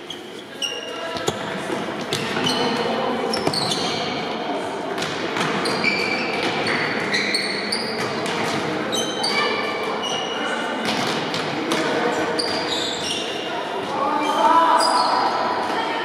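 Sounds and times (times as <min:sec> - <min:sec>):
sneaker squeaks on floor: 0:00.0 - 0:04.2, 0:05.5 - 0:08.3, 0:08.9 - 0:10.5, 0:12.3 - 0:13.5
ball kicks: 0:01.1 - 0:02.5.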